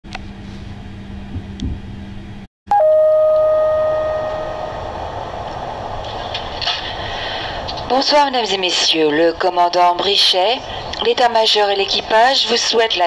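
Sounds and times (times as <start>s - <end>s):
steady low hum: 0.1s - 9.6s
two-tone public address chime: 2.7s - 4.9s.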